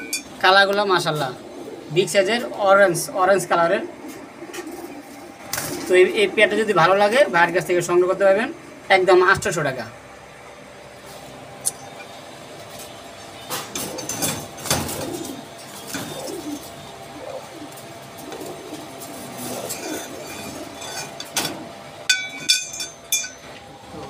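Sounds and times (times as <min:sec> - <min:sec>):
ringing metallic clinks: 0:00.0 - 0:00.3, 0:22.1 - 0:23.5
pigeons cooing: 0:00.0 - 0:08.0, 0:10.3 - 0:23.0.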